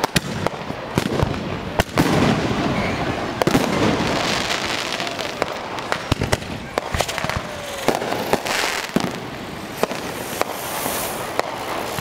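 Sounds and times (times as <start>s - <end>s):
fireworks crackling hiss: 0.0s - 12.0s
fireworks sharp bangs: 0.0s - 12.0s.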